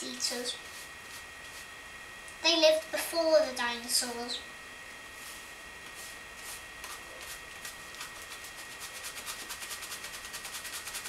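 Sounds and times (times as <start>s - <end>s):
brush scratching gritty floor: 5.2s - 11.0s.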